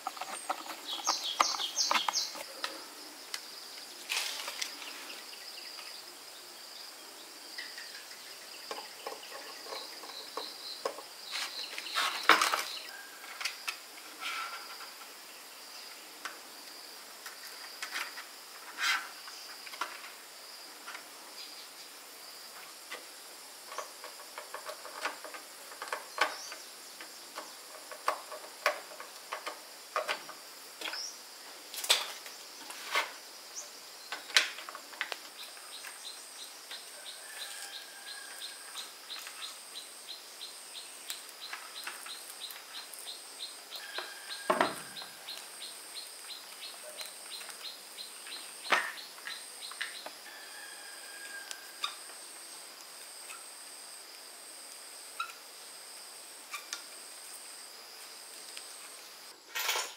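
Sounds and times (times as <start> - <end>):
high insect drone: 0.0 - 59.9.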